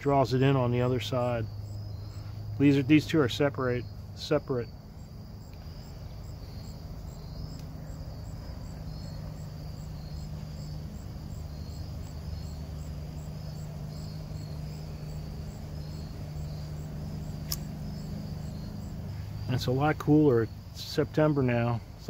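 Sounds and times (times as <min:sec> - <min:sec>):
crickets chirping: 0:00.0 - 0:22.0
low steady hum: 0:00.0 - 0:22.0
sharp click: 0:17.4 - 0:17.8.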